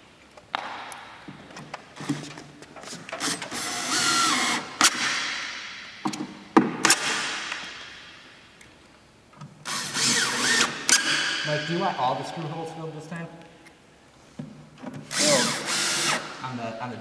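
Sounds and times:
cordless drill driving screws: 3.1s - 5.1s, 9.6s - 11.3s, 15.1s - 16.4s
drill clicks: 15.0s - 16.3s.

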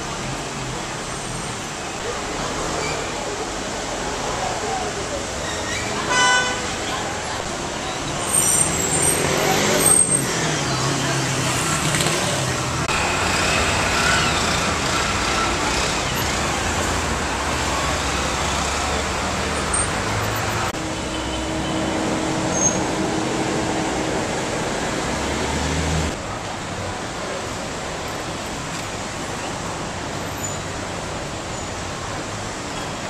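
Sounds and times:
car engines humming: 7.0s - 26.3s.

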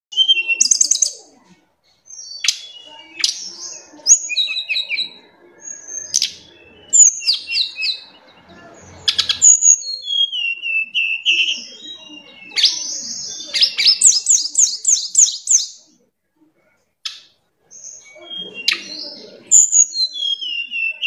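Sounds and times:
bird singing high trills: 0.1s - 1.2s, 2.1s - 15.8s, 17.7s - 21.0s.

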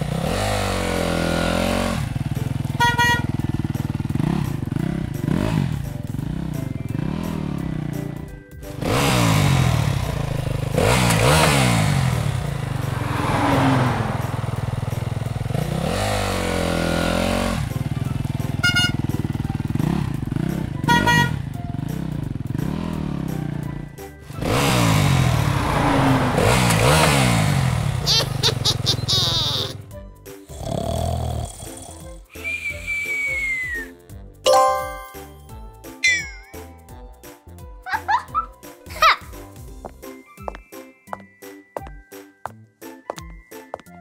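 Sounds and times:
dirt bike engine revving: 0.0s - 8.0s, 8.7s - 23.6s, 24.3s - 29.8s
horn honks: 2.6s - 3.6s, 18.2s - 19.4s, 20.7s - 21.6s.

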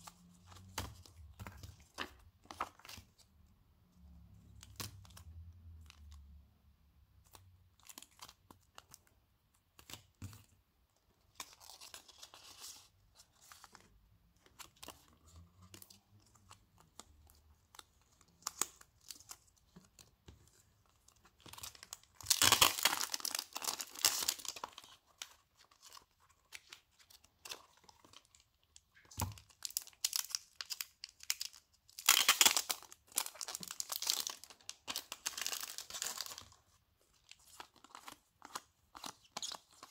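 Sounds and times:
plastic wrapper crinkling and tearing: 21.1s - 39.9s.

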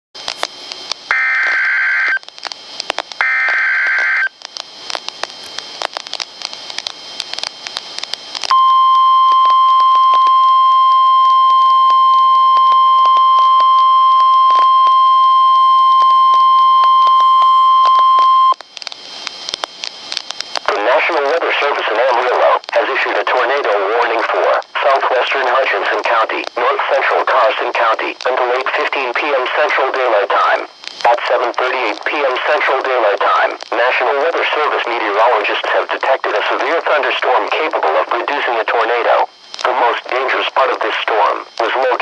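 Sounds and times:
crackly radio static: 0.2s - 42.0s
steady warning alarm tone: 1.1s - 2.3s, 3.2s - 4.4s, 8.5s - 18.6s
warbling digital header tones: 3.2s - 4.3s.

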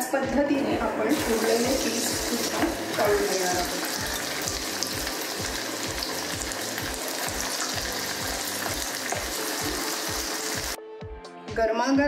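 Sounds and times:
background music with low beat: 0.0s - 12.0s
hot oil sizzling and crackling: 1.1s - 10.8s.

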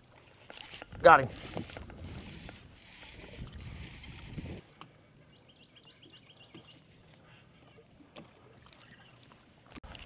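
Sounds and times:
fishing reel clicking: 0.1s - 4.6s.

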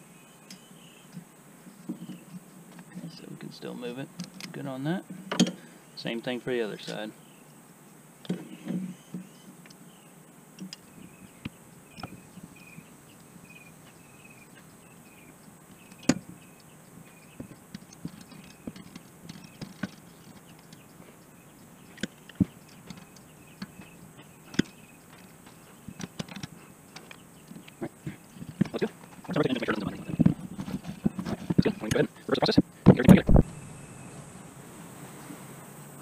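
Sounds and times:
hand tools clicking on metal: 13.2s - 32.1s.

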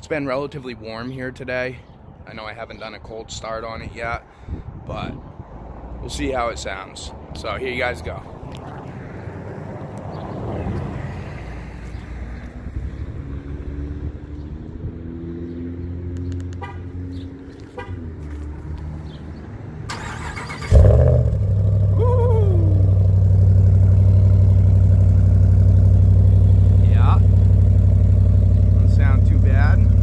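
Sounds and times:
engine starter cranking: 19.9s - 21.2s
engine firing and idling: 19.9s - 30.0s
short falling whine: 21.2s - 25.3s.

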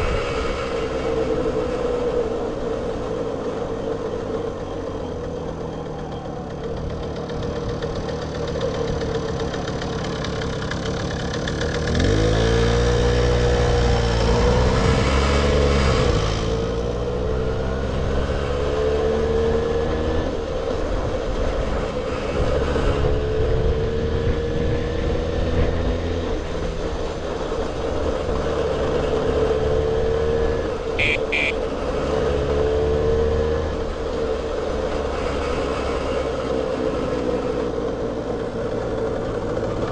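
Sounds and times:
moped engine running: 2.9s - 13.7s, 30.9s - 32.3s.

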